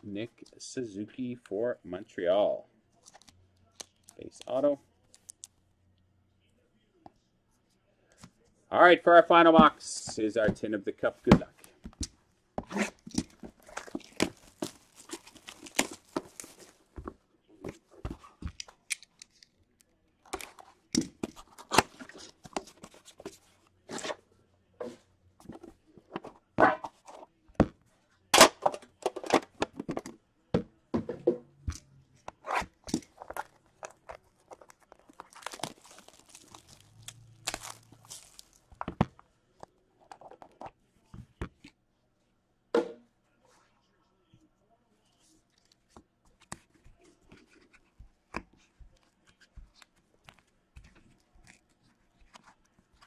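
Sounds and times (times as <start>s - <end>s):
plastic wrap tearing and crinkling: 13.0s - 16.8s, 33.1s - 38.8s.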